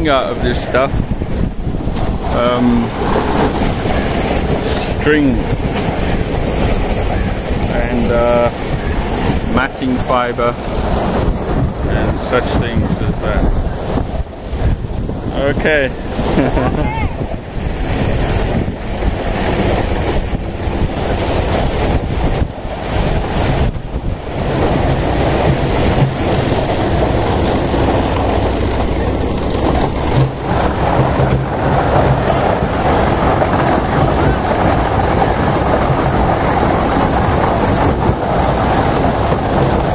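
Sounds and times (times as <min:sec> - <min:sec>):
wind rumbling on microphone: 0:00.0 - 0:39.9
machinery and conveyor humming: 0:17.7 - 0:39.9.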